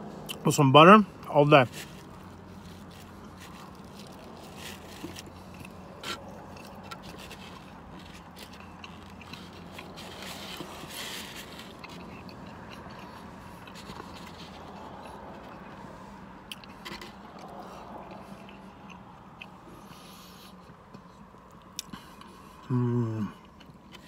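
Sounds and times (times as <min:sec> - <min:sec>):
chewing toast: 0:02.0 - 0:15.8, 0:16.4 - 0:22.7.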